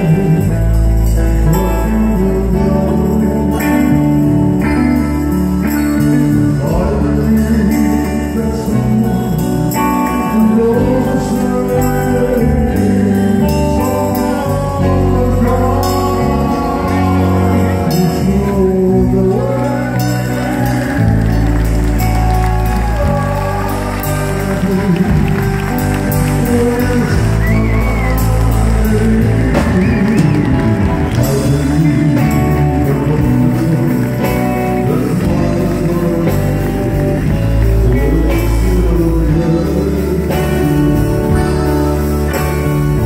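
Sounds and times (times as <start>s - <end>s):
live band playing: 0.0s - 43.0s
man singing: 0.0s - 43.0s.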